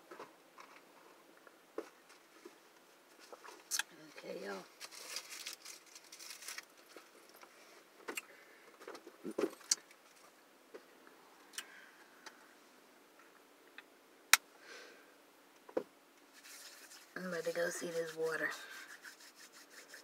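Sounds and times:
rustling of small items: 1.8s - 10.4s, 16.3s - 20.0s.

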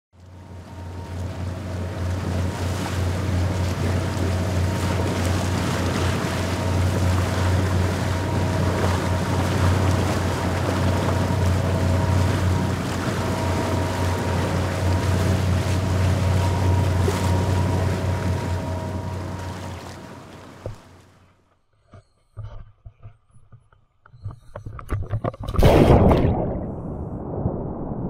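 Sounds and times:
outboard motor running: 0.2s - 21.2s
rush of boat wake: 0.2s - 21.2s.

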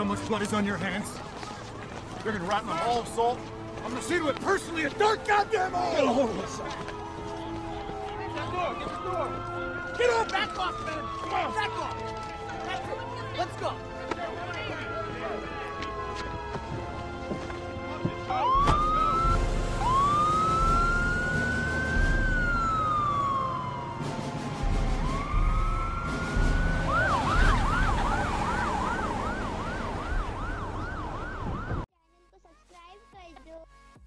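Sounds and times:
police sirens wailing: 0.0s - 31.9s.

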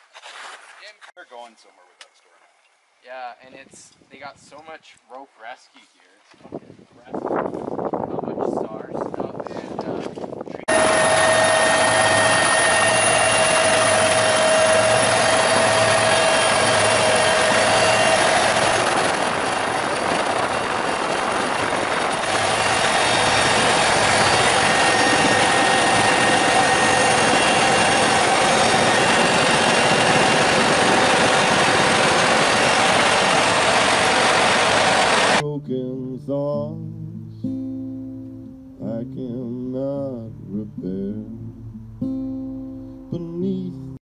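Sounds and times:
helicopter engine and rotor noise: 10.1s - 35.4s.

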